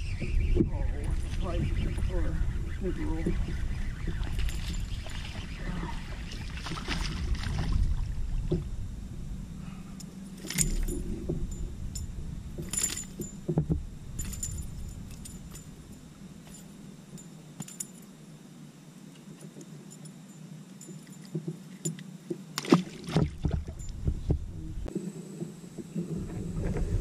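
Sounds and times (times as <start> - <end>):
low rumble: 0.0 - 17.2, 23.3 - 27.0
fishing tackle clinking: 9.9 - 18.2, 19.4 - 22.1.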